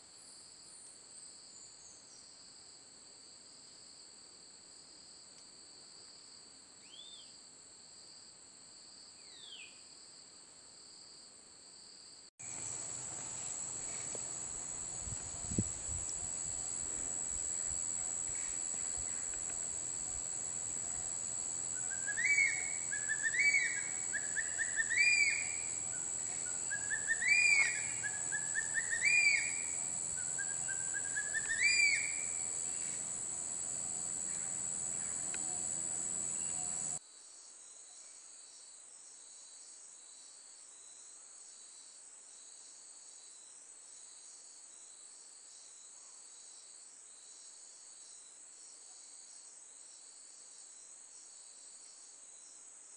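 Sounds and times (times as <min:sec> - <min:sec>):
faint insect trill: 0:00.1 - 0:52.9
high-pitched insect buzz: 0:12.4 - 0:37.0
bird rising whistled calls: 0:21.8 - 0:25.8, 0:26.6 - 0:32.5.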